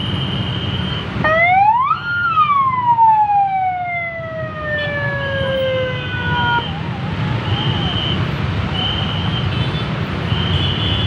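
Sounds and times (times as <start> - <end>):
ambulance siren wail: 1.2 - 8.4.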